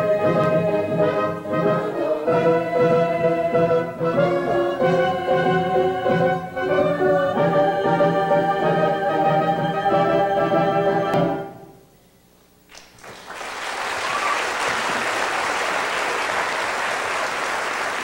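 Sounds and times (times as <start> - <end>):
audience applause: 12.7 - 18.0.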